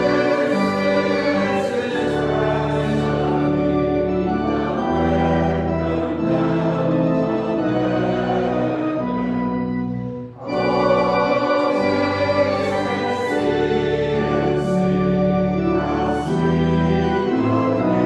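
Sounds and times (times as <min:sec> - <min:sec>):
voices singing: 0:00.0 - 0:09.2, 0:10.4 - 0:15.0
organ playing hymn chords: 0:00.0 - 0:18.0.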